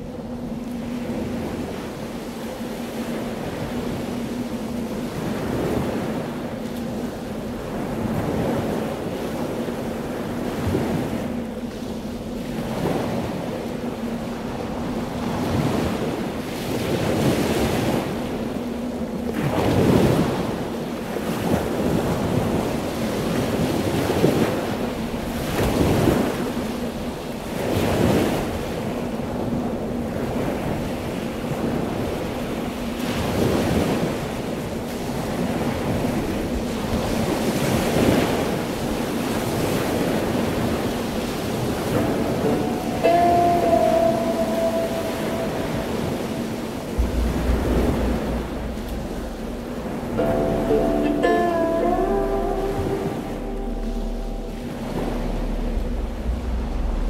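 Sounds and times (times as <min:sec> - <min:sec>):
wind buffeting microphone: 0:00.0 - 0:51.7, 0:52.3 - 0:57.0.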